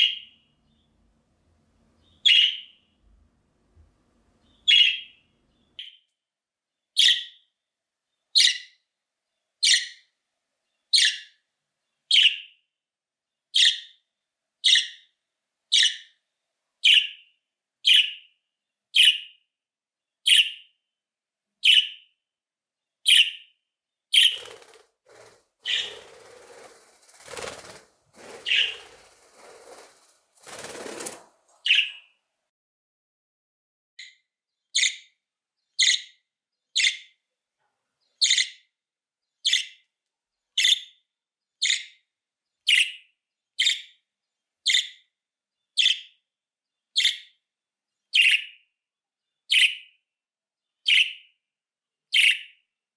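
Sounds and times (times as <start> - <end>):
wings fluttering: 24.2 - 32.0.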